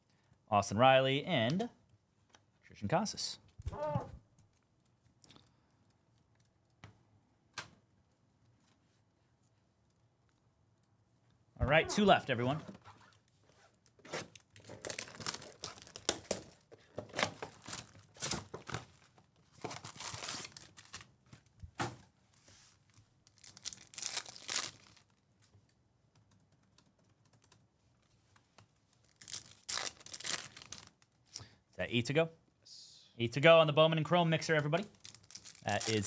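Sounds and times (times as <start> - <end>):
packaging tearing: 14.0 - 16.6, 19.7 - 21.1, 23.3 - 25.1, 29.0 - 31.1, 34.9 - 36.0
card packs crinkling: 14.0 - 21.2, 22.9 - 25.2, 28.9 - 31.2, 34.6 - 36.0
foil pack ripping open: 14.2 - 16.5, 19.7 - 21.1, 23.3 - 25.1, 29.1 - 31.0, 35.0 - 36.0.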